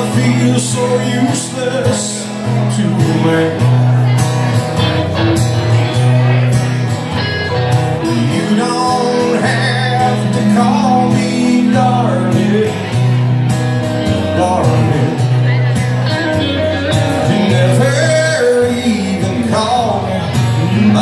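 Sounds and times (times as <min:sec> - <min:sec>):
man singing: 0:00.0 - 0:04.2, 0:08.0 - 0:13.3, 0:14.0 - 0:21.0
electric and acoustic guitars: 0:00.0 - 0:21.0.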